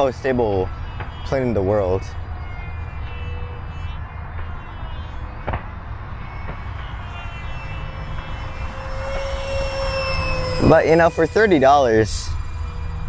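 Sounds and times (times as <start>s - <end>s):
electric ducted fan whining: 0.0s - 13.0s
low rumble: 5.2s - 13.0s.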